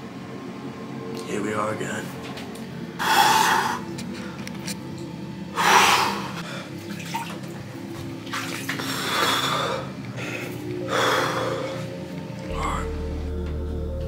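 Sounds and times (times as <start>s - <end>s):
bath water sloshing and splashing: 6.7s - 9.3s.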